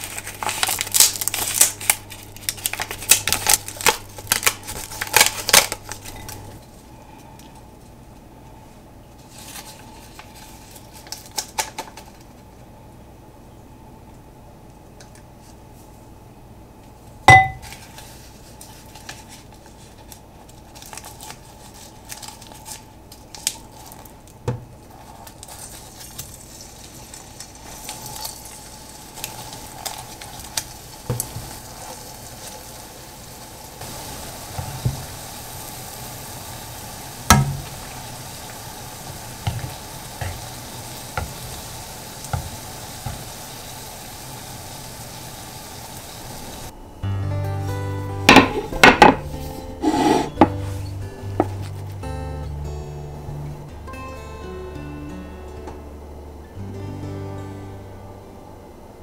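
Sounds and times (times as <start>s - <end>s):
utensil clinking on cookware: 17.3s - 17.6s
food sizzling in oil: 25.5s - 46.7s.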